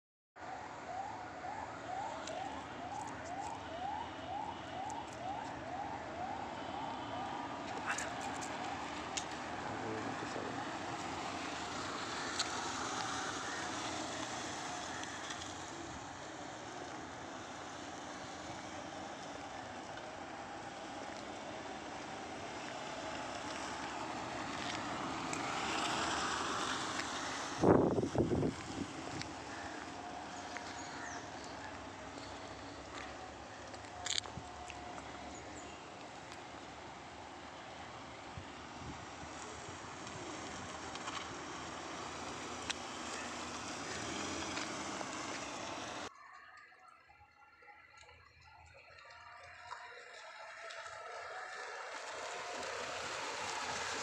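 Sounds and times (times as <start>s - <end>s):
steady outdoor rush: 0.4s - 54.0s
wind blowing on microphone: 27.6s - 29.2s.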